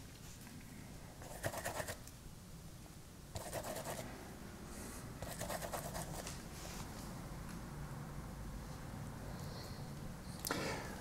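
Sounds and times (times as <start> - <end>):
paintbrush scrubbing paint: 3.4 - 4.0, 5.2 - 6.2.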